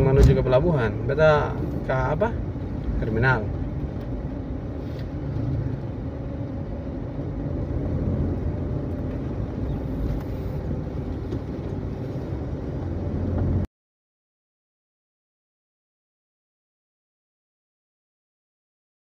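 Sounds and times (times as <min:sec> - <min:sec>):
car engine and road rumble: 0:00.0 - 0:13.7.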